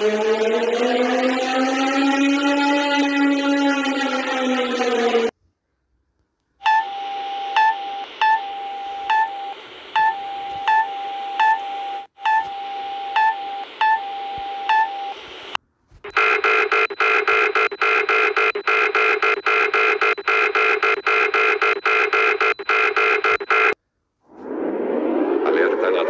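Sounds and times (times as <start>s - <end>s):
alarm beeps: 0.0s - 5.3s, 6.6s - 15.2s, 16.1s - 23.8s
steady alarm tone: 0.0s - 5.3s, 6.6s - 23.8s
rapidly pulsing alert tones: 16.1s - 23.8s.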